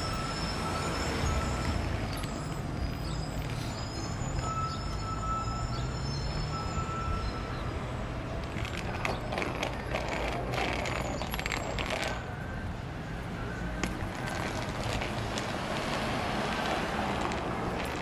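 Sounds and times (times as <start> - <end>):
city street traffic: 0.0 - 18.0
bicycle clicks and rattles: 8.4 - 12.3, 13.8 - 18.0.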